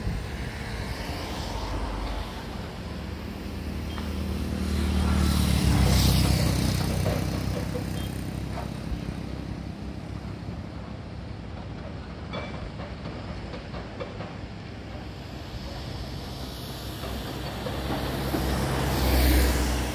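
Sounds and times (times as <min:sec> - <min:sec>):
heavy vehicle engine passing: 0:00.0 - 0:11.2, 0:14.6 - 0:19.9.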